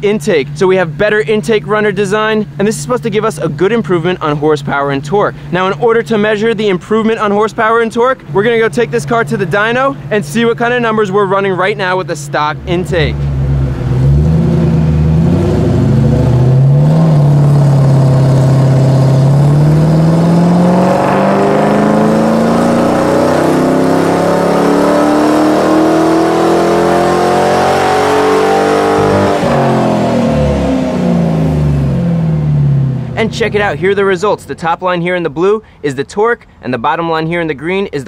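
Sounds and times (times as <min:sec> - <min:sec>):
car engine revving at full throttle: 0:12.6 - 0:33.6.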